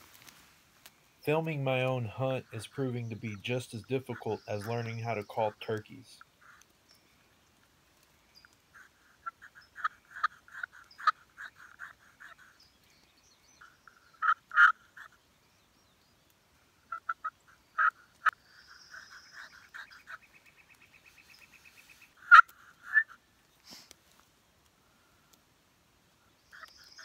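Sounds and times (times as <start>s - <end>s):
turkey call yelps: 8.8s - 12.5s, 13.8s - 15.1s, 16.9s - 20.2s, 22.2s - 23.2s.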